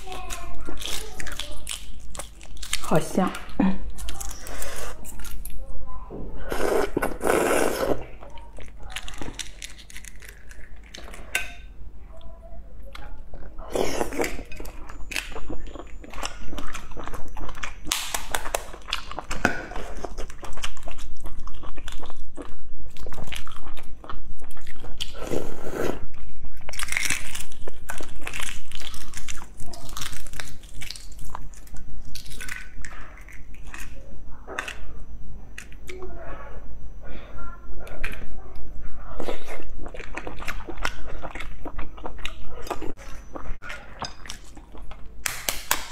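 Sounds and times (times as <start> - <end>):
eggshells cracking and crinkling: 0.0 - 5.6, 8.2 - 11.3, 26.5 - 34.0
wet chewing: 0.0 - 5.7, 6.4 - 36.1, 37.8 - 45.9.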